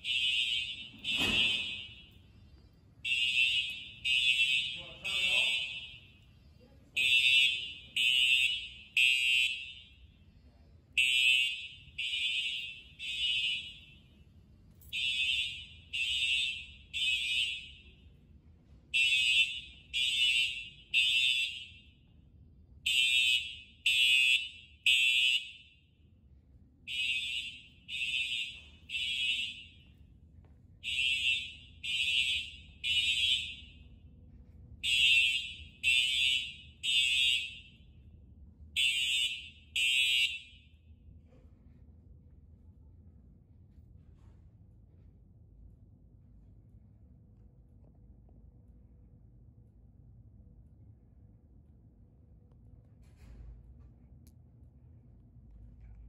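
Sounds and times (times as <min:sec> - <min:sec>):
fire alarm horn blasts: 0:00.0 - 0:26.2, 0:26.8 - 0:30.2, 0:30.8 - 0:34.2, 0:34.8 - 0:41.1.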